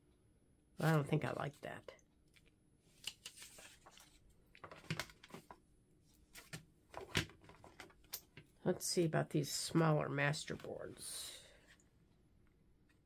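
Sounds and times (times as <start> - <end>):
paper taps and rustles: 3.0 - 5.6.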